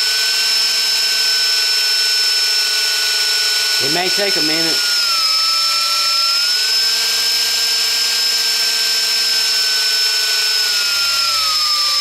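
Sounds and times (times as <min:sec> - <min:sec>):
cordless drill motor whine: 0:00.0 - 0:12.0.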